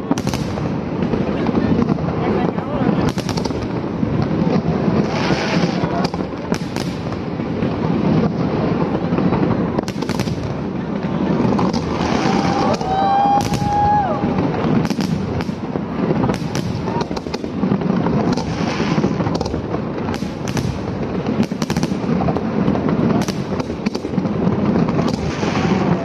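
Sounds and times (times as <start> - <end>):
fireworks bangs and crackles: 0.0 - 26.0
firework whistle: 5.0 - 6.0, 11.7 - 15.2.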